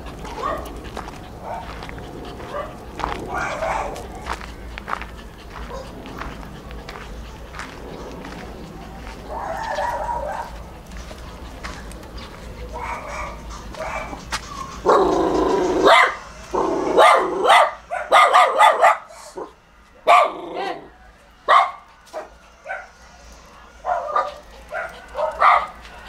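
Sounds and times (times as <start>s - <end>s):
dog barking: 0.3s - 0.8s, 1.4s - 4.5s, 9.0s - 10.6s, 12.6s - 14.2s, 14.8s - 19.4s, 20.0s - 20.9s, 21.5s - 23.0s, 23.8s - 25.9s.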